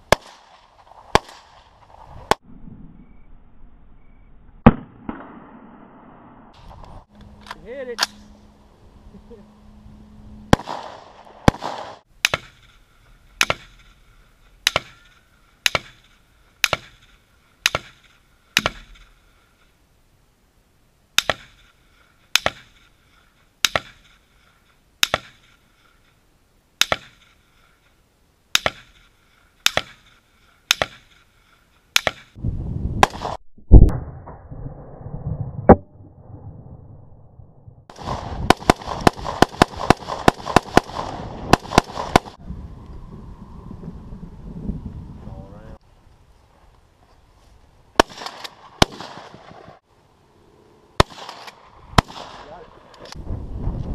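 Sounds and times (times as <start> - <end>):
rifle shots: 0.0 - 1.7, 10.5 - 12.8, 13.4 - 14.0, 14.6 - 19.1, 25.0 - 25.6, 28.5 - 30.1, 30.7 - 31.2, 33.0 - 33.9, 37.9 - 42.4, 48.0 - 49.8, 51.0 - 53.1.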